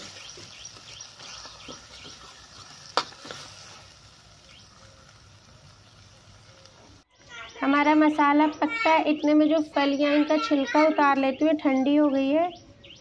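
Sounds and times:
ladle stirring and scraping: 0.0 - 5.0
masala frying faintly: 0.0 - 8.2.

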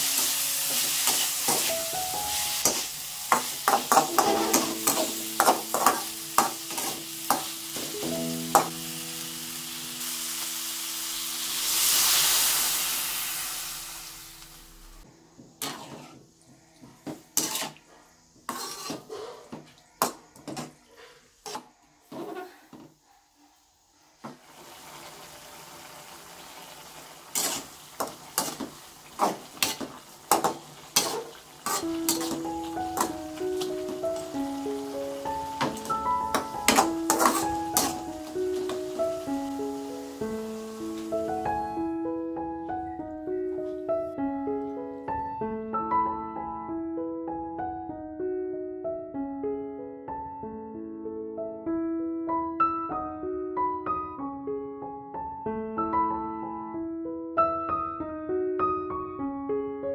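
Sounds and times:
liquid hissing in hot pan: 0.0 - 16.3, 17.1 - 19.5, 23.6 - 41.8
vegetables sizzling: 0.0 - 23.0, 23.6 - 44.1
metal spatula scraping a wok: 0.1 - 1.8, 2.5 - 7.9, 15.6 - 16.2, 17.0 - 22.6, 27.3 - 34.3, 35.6 - 39.0.

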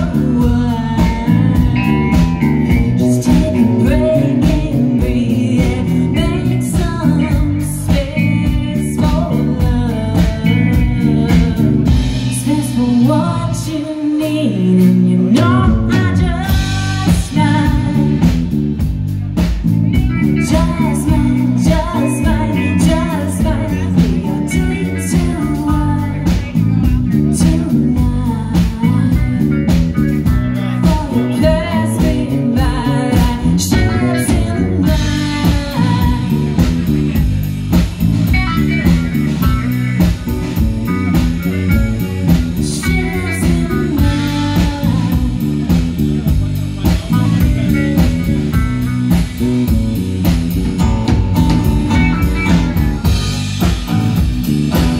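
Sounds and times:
woman singing: 0.0 - 18.7, 19.4 - 54.9
bass guitar: 0.0 - 54.9
drum kit: 0.0 - 54.9
electric guitars: 0.0 - 54.9.

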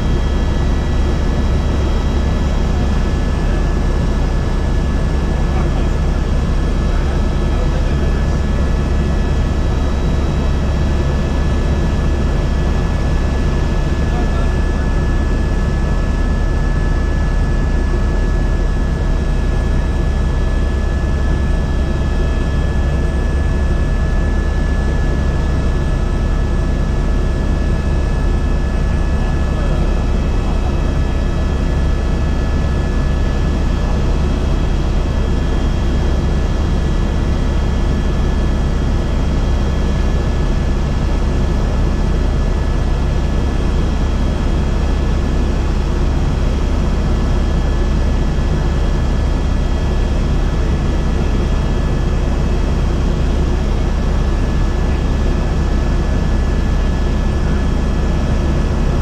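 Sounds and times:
faint steady whines: 0.0 - 59.0
helicopter rotor and turbine drone: 0.0 - 59.0.

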